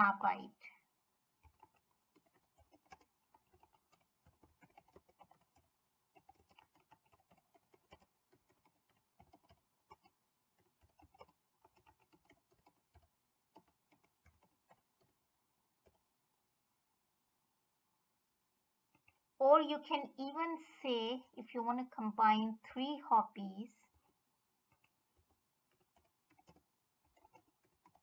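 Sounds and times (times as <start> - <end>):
typing on computer keyboard: 1.4 - 15.2, 23.9 - 28.0.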